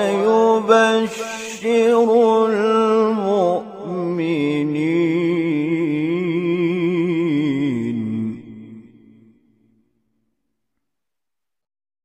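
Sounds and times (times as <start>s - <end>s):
man reciting in melodic chant: 0.0s - 9.3s.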